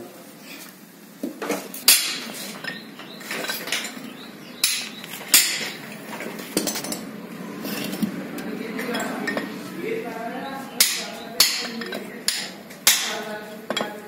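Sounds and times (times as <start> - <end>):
metal tools clinking: 1.9 - 8.0, 8.8 - 9.6, 10.8 - 14.0.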